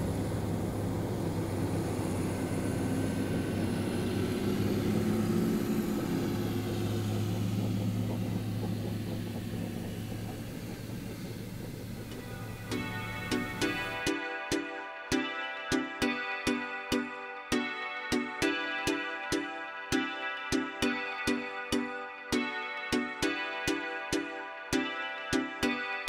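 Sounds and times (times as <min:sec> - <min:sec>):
electric aircraft propellers humming: 0:00.0 - 0:14.5.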